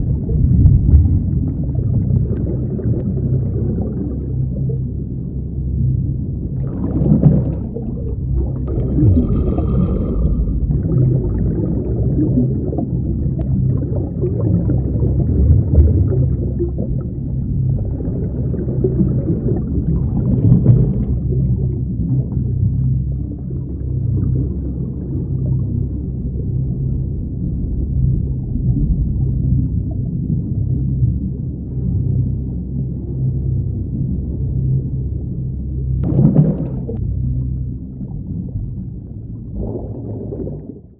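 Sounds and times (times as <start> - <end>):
bubbles gurgling: 0.0 - 5.0, 6.4 - 31.4, 36.0 - 40.9
diver breathing underwater: 8.7 - 12.1.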